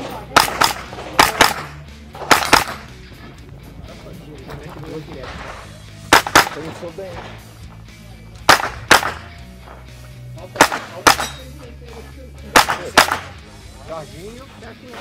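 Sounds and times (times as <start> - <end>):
rifle gunshots: 0.0 - 3.0, 5.2 - 7.5, 8.4 - 9.4, 10.5 - 11.5, 12.5 - 13.4.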